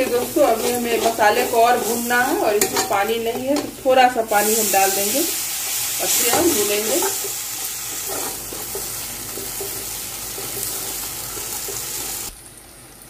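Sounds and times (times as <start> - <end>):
metal spoon scraping: 0.0 - 3.7
paste sizzling in oil: 0.0 - 12.3.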